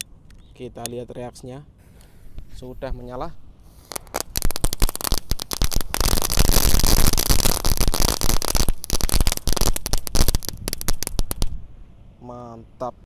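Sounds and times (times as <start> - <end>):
firecrackers crackling: 3.7 - 11.6.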